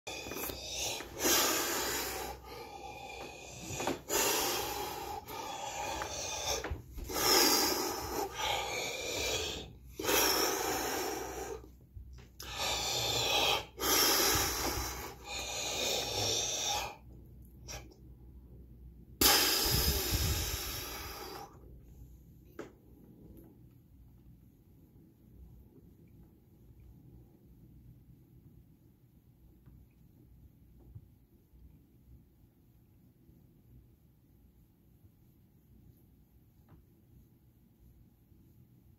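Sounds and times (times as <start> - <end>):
man breathing deeply: 0.1 - 11.7, 12.4 - 17.0, 19.2 - 21.6.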